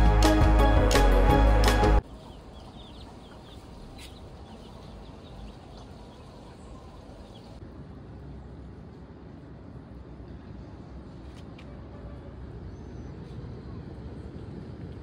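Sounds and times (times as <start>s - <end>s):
chicks peeping: 2.0s - 7.6s.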